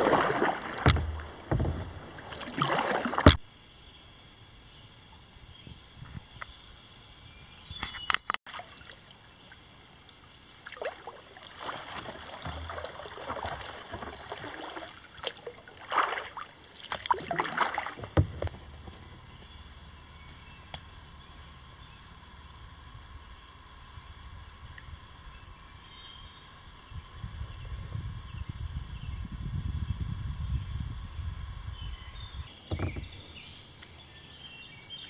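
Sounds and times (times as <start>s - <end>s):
paddle strokes in water: 0.0s - 3.4s, 10.6s - 19.5s
water splashes and drips: 0.0s - 3.4s, 8.5s - 9.2s, 10.1s - 18.4s.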